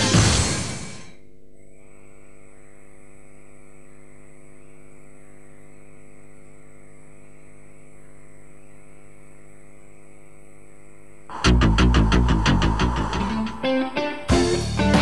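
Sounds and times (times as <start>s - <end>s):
electrical mains hum: 0.0s - 15.0s
thin high whine: 0.0s - 15.0s.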